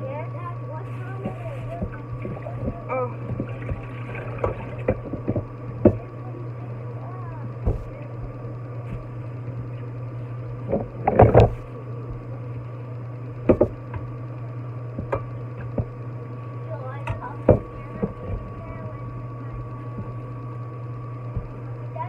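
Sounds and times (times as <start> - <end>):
low hum: 0.0 - 22.0
tap water running into a wok: 3.3 - 5.4.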